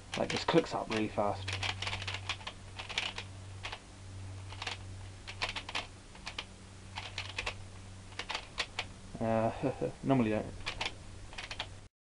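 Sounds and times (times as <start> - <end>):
puzzle cube pieces clicking: 8.2 - 8.9, 10.6 - 11.7.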